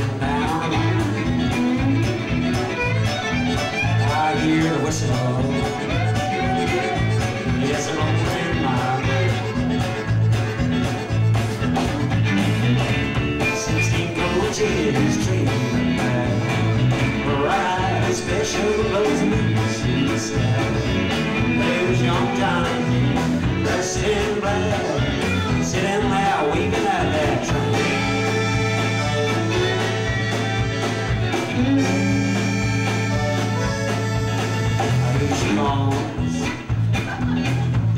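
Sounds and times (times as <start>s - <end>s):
fiddle with sliding notes: 0.0s - 16.9s, 27.2s - 35.9s
country-rock band playing: 0.0s - 37.9s.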